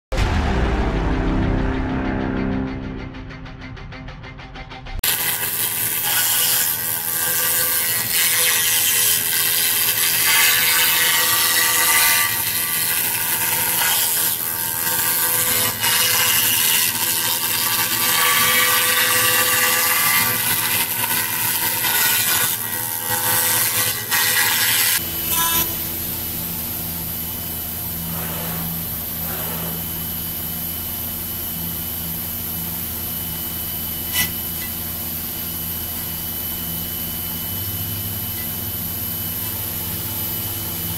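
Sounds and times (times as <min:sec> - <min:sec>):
spindle high whine: 0:00.1 - 0:05.0
milling cutter grinding wood: 0:05.0 - 0:25.9.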